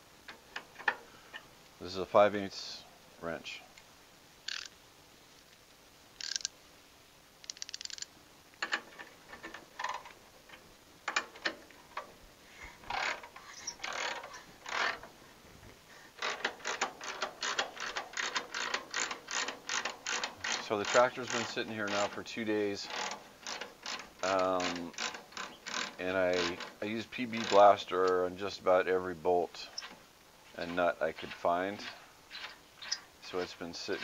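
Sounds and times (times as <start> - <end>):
ratchet wrench clicking: 4.5 - 4.7, 6.2 - 6.5, 7.4 - 8.1, 16.2 - 22.1, 22.9 - 26.7.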